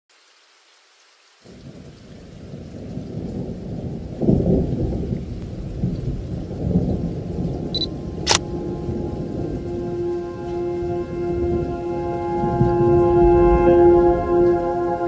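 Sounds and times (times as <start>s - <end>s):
rain: 0.1s - 15.0s
thunder rumbling: 1.5s - 14.5s
sharp click: 7.8s - 8.4s
held musical note: 8.5s - 15.0s.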